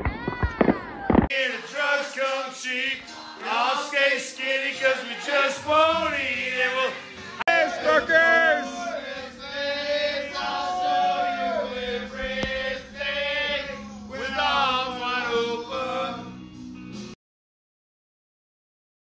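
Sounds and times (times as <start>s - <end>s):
men singing together: 1.3s - 16.4s.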